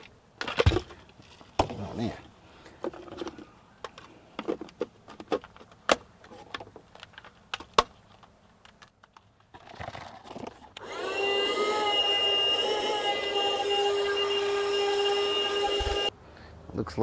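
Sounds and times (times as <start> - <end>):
plastic parts clicking and knocking: 2.8 - 10.8
vacuum motor whining: 10.8 - 16.1.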